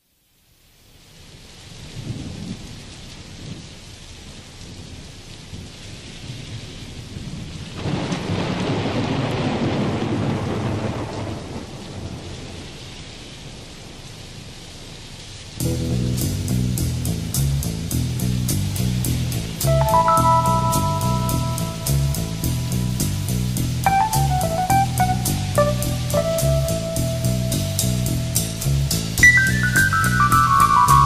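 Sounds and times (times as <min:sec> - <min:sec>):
rain hiss: 0:00.0 - 0:31.0
rolling thunder: 0:06.3 - 0:12.8
bass and drums: 0:15.6 - 0:31.0.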